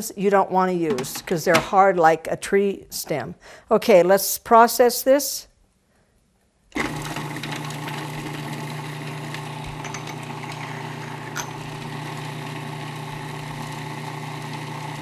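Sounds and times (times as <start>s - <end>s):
food processor chopping: 6.8s - 15.0s.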